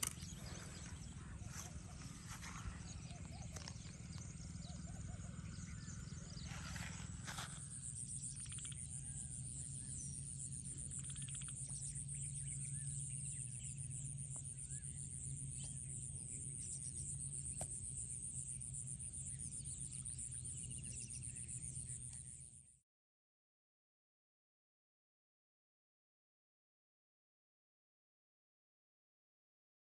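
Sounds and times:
birds chirping and trilling: 0:00.0 - 0:22.6.

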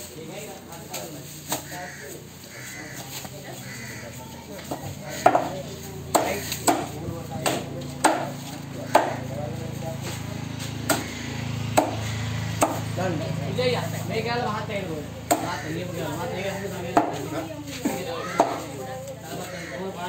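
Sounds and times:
knife chopping on wooden block: 0:05.2 - 0:05.5, 0:06.1 - 0:09.3, 0:10.9 - 0:11.1, 0:11.8 - 0:12.8, 0:16.9 - 0:17.2.

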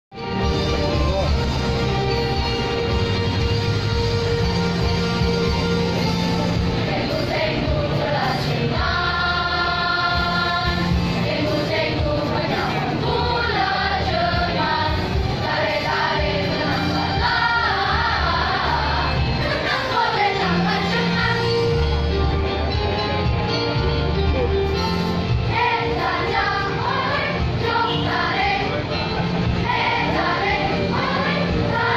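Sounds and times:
instrumental accompaniment: 0:00.1 - 0:31.9
children's choir singing: 0:06.5 - 0:22.0, 0:25.4 - 0:31.9.

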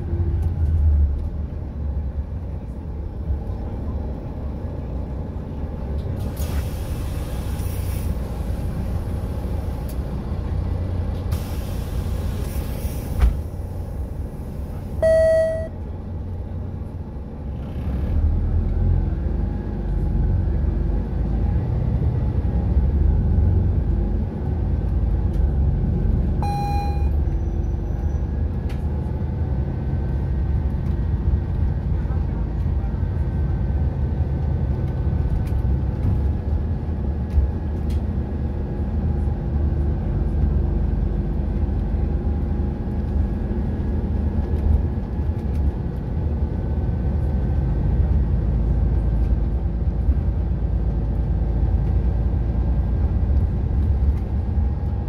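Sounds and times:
bus engine rumbling: 0:00.0 - 0:55.0
road noise: 0:00.0 - 0:55.0
short beeps: 0:15.0 - 0:15.8, 0:26.4 - 0:27.2.

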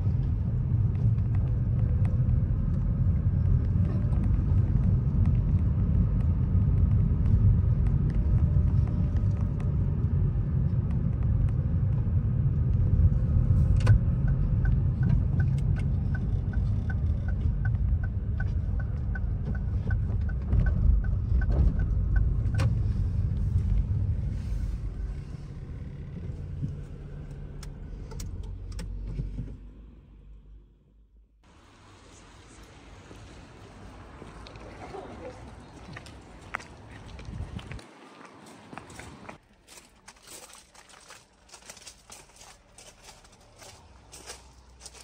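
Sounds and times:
road and engine rumble in car: 0:00.0 - 0:45.0
turn indicator ticking: 0:00.1 - 0:29.0.

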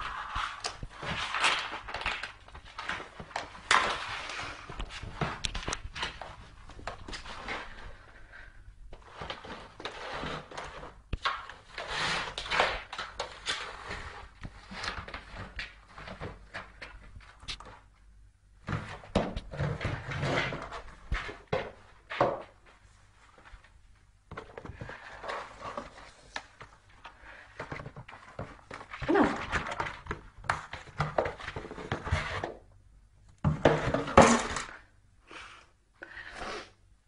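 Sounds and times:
cardboard box scraping on tiles: 0:07.1 - 0:08.2, 0:09.0 - 0:16.6, 0:18.7 - 0:22.4, 0:24.6 - 0:26.4, 0:31.0 - 0:32.6.

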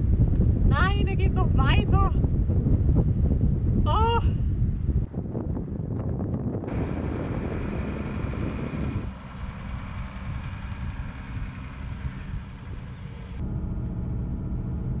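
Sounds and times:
truck engine rumbling: 0:04.9 - 0:15.0.

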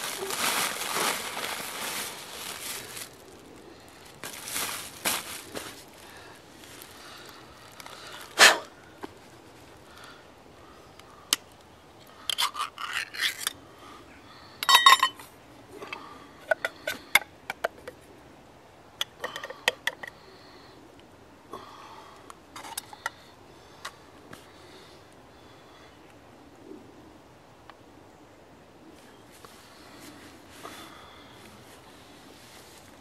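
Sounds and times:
metal can and cup clinking: 0:14.6 - 0:15.2.

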